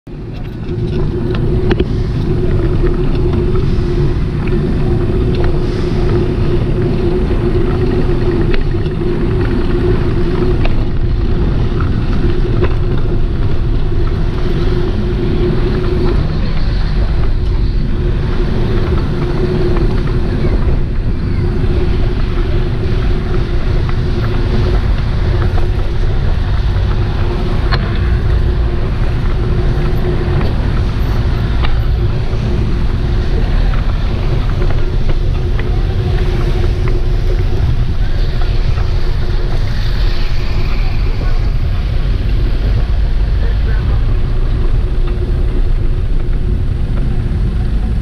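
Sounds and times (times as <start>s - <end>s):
bicycle road rumble: 0.0s - 48.0s
wind buffeting: 0.0s - 48.0s
steady hum: 0.1s - 48.0s.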